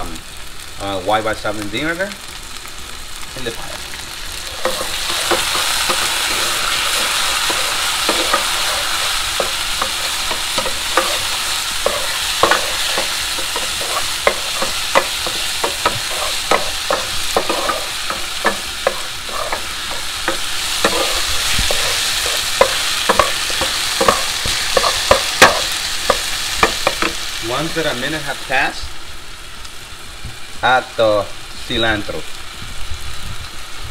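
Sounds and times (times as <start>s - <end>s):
sauce sizzling in a frying pan: 0.0s - 33.9s
utensil scraping a pan: 4.4s - 27.2s.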